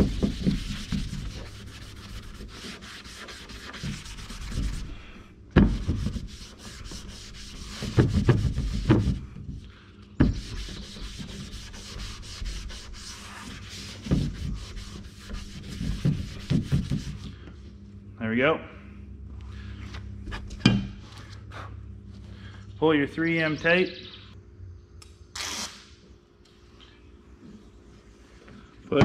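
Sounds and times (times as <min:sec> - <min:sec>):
wet wipe scrubbing painted roof: 0:00.0 - 0:17.4.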